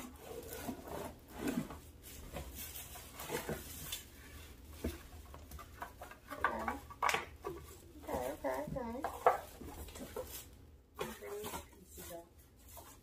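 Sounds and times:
cardboard scraping: 0:00.0 - 0:06.6.

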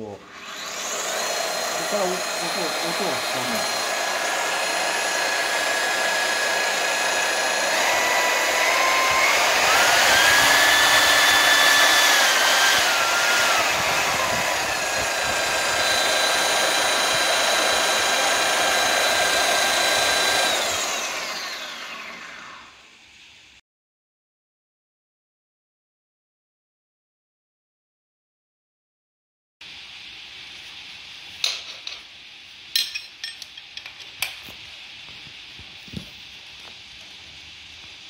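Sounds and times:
core drill motor whining: 0:00.0 - 0:22.8.

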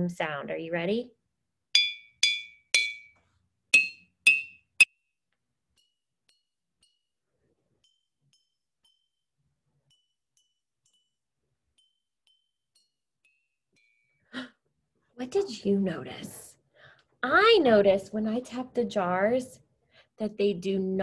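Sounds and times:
glass jars ringing when struck: 0:01.8 - 0:05.0, 0:07.8 - 0:14.2.

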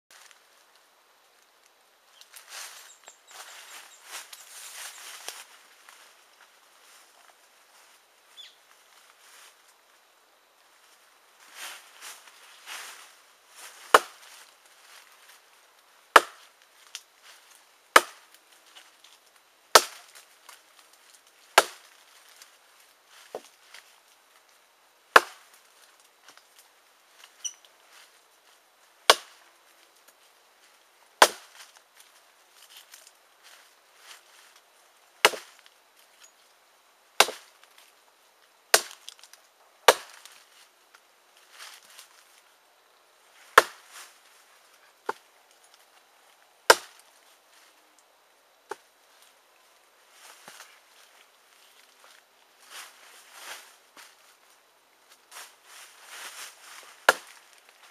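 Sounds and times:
blade chopping into log: 0:13.9 - 0:14.2, 0:16.2 - 0:16.4, 0:18.0 - 0:18.2, 0:19.8 - 0:20.0, 0:21.6 - 0:21.8, 0:25.2 - 0:25.4, 0:29.1 - 0:29.3, 0:31.2 - 0:31.5, 0:35.3 - 0:35.5, 0:37.2 - 0:37.4, 0:39.9 - 0:40.2, 0:43.6 - 0:43.8, 0:46.7 - 0:47.0, 0:57.1 - 0:57.3.

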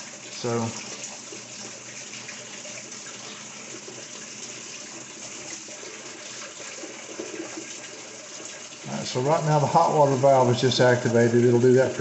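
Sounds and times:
water rushing into washer tub: 0:00.0 - 0:12.0.

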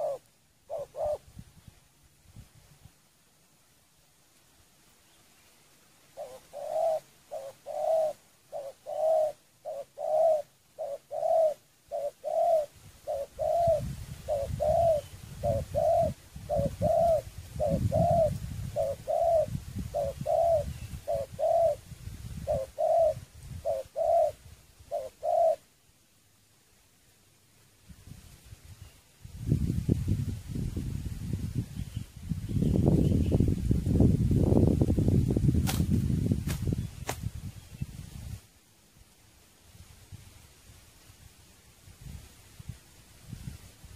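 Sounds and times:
dove cooing: 0:00.0 - 0:01.3, 0:06.2 - 0:21.8, 0:22.4 - 0:25.6.

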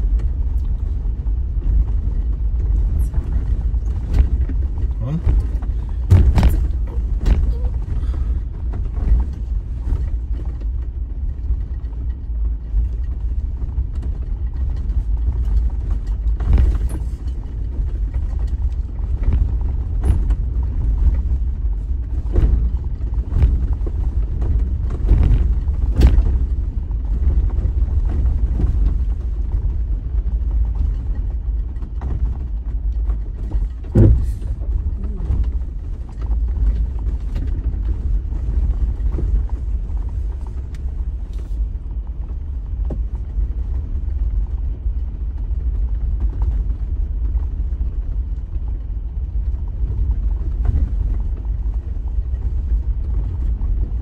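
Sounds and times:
vehicle engine and tyres rumbling: 0:00.0 - 0:54.0
sharp knocks over rocks: 0:04.0 - 0:08.3.

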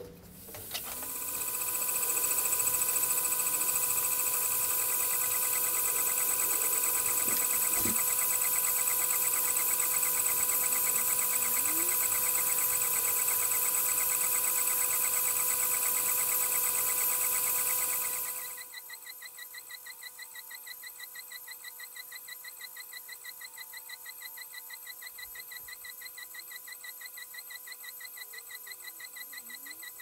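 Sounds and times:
motors whining: 0:00.6 - 0:18.5.

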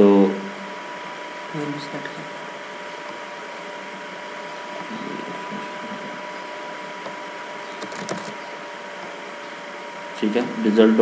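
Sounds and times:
steady background hiss: 0:00.0 - 0:11.0
thin steady whine: 0:00.0 - 0:11.0
computer mouse clicks: 0:07.8 - 0:08.4.

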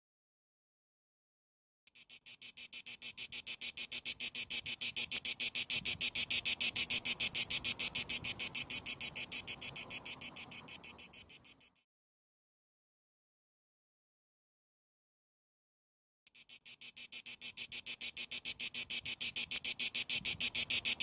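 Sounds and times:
cicada buzzing: 0:01.9 - 0:11.8, 0:16.3 - 0:21.0.

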